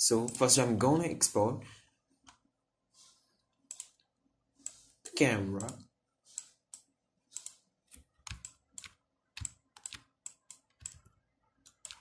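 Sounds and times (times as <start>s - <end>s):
keyboard and mouse clicks: 3.6s - 4.8s, 5.6s - 12.0s.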